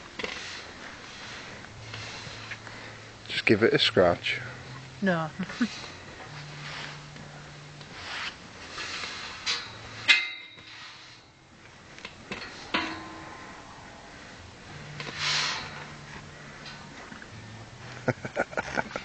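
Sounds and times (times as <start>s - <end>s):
horse scraping against gate: 14.9s - 16.7s.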